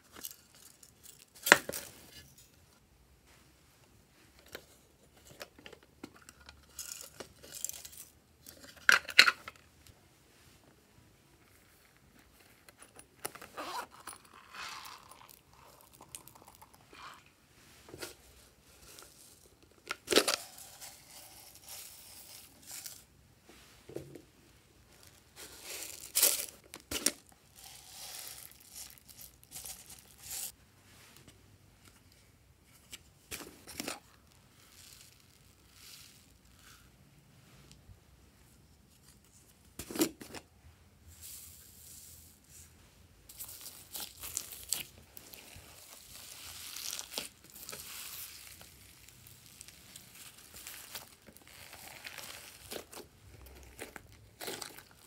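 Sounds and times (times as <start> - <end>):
plastic crinkling and crackling: 11.8 - 17.3, 24.9 - 30.6, 43.3 - 55.0.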